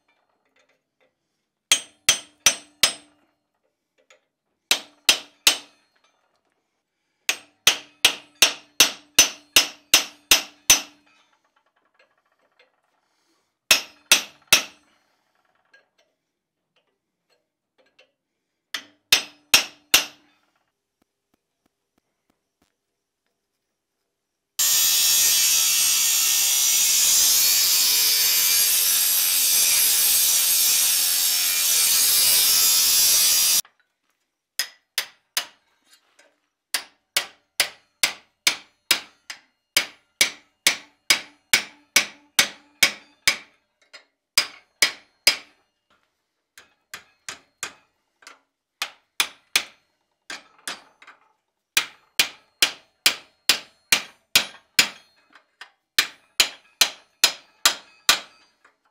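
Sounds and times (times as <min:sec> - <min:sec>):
angle grinder grinding iron: 0:24.6 - 0:33.6.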